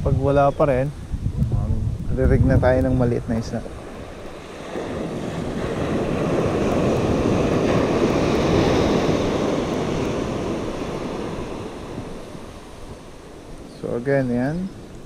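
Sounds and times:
wave breaking on beach: 0:03.5 - 0:15.0.

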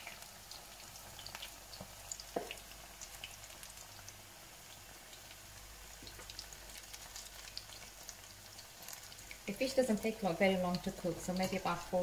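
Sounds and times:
food deep-frying in oil: 0:00.0 - 0:12.0.

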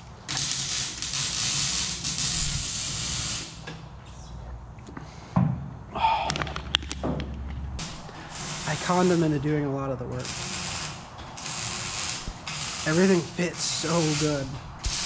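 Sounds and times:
welding arc hissing and crackling: 0:00.0 - 0:03.8, 0:07.8 - 0:09.5, 0:10.2 - 0:15.0.

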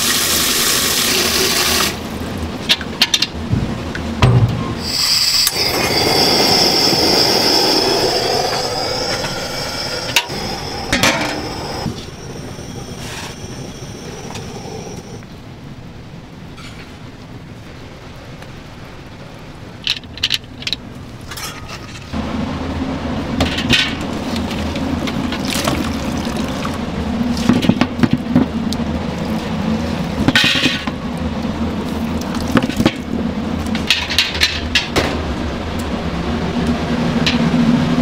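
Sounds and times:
steady low hum: 0:01.9 - 0:16.4
liquid sloshing and pouring: 0:24.4 - 0:27.6.

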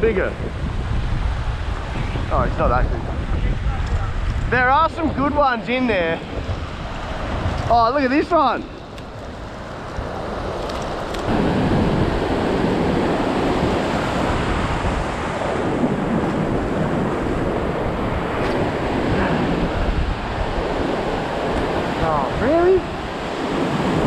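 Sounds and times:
wind buffeting microphone: 0:00.0 - 0:24.0
ocean surf breaking on beach: 0:04.1 - 0:24.0.

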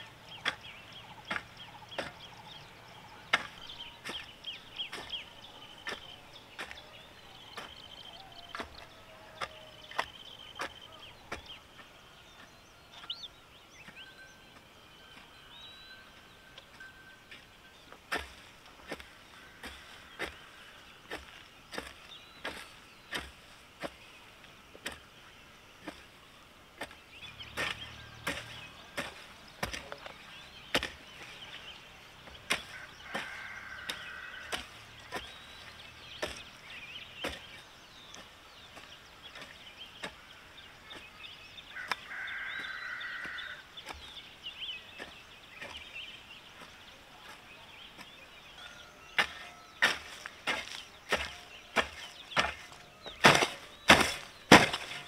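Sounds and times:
birds chirping: 0:00.0 - 0:55.0
held bird calls: 0:00.0 - 0:55.0
chopping strikes: 0:26.8 - 0:31.2, 0:37.2 - 0:38.2, 0:49.1 - 0:55.0.

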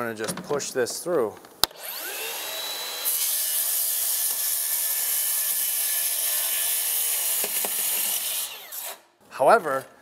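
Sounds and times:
circular saw cutting siding: 0:01.6 - 0:09.1.

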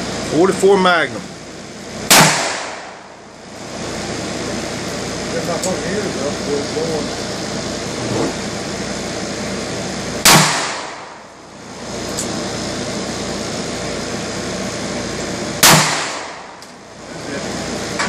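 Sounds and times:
revolver gunshots: 0:02.0 - 0:03.1, 0:10.2 - 0:11.3, 0:15.6 - 0:16.6.

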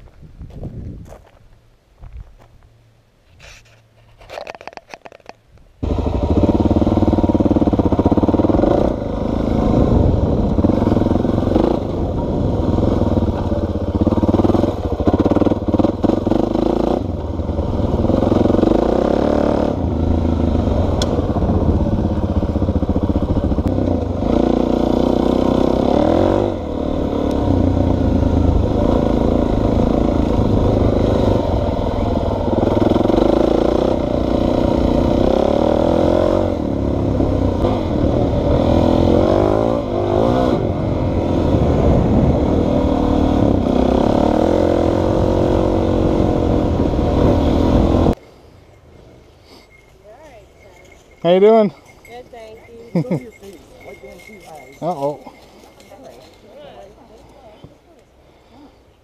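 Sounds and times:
dirt bike engine revving: 0:05.8 - 0:48.2.

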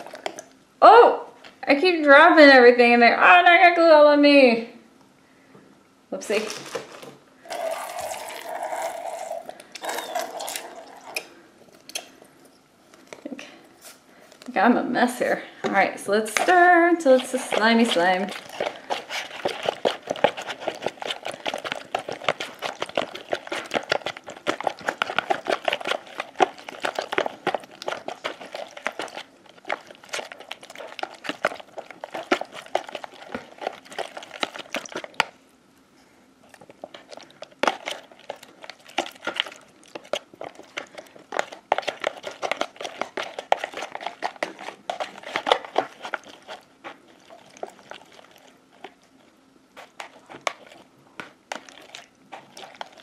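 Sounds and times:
stick scraping plastic bowl: 0:15.6 - 0:35.3, 0:36.6 - 0:49.0, 0:49.8 - 0:53.0.

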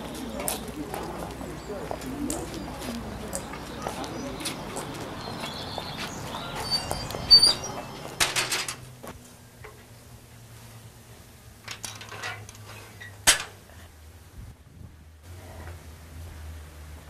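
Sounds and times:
iron gates clinking and rattling: 0:06.2 - 0:08.9
iron gate clanking: 0:06.6 - 0:08.9.

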